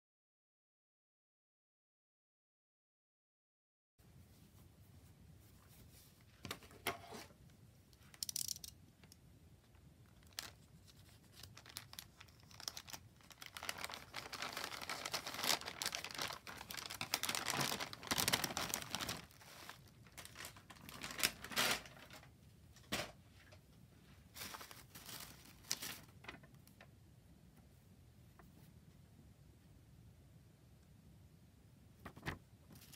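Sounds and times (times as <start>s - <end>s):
plastic mailer bag crinkling: 10.0s - 22.3s, 24.4s - 26.6s
foam wrap rustling: 10.2s - 22.2s, 24.3s - 26.4s
plastic tearing: 10.2s - 22.3s.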